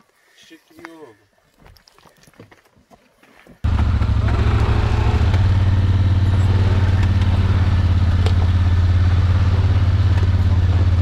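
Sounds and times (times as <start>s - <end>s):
engine running with low hum: 3.6s - 11.0s.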